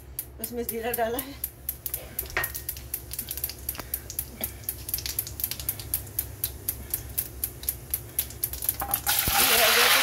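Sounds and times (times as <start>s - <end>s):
low steady hum: 0.0s - 10.0s
seeds crackling in hot oil: 0.1s - 10.0s.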